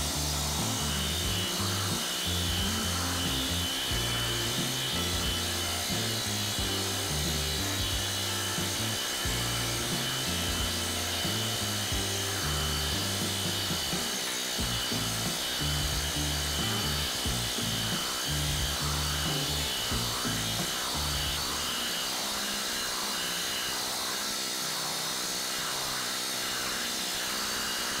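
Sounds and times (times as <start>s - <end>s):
background music with bass line: 0.0s - 21.6s
planishing hammer running: 0.0s - 28.0s.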